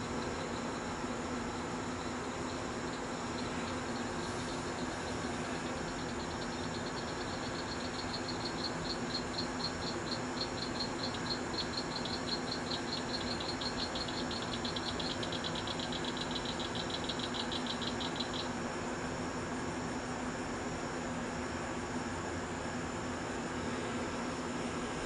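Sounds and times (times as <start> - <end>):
cricket chirping: 0.0 - 19.9
steady low hum: 0.0 - 25.0.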